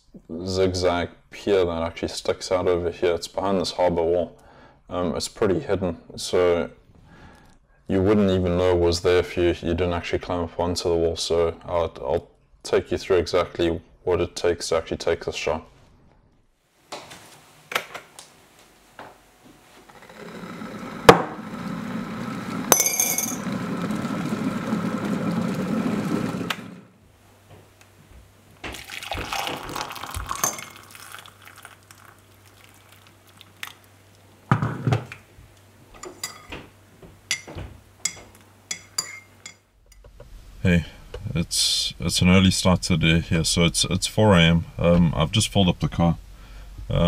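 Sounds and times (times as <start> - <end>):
electric kettle boiling: 19.8 - 22.7, 23.4 - 27.0, 28.6 - 34.6
water pouring into a mug: 28.7 - 33.9
teaspoon stirring and clinking: 30.3 - 31.2, 37.3 - 39.6.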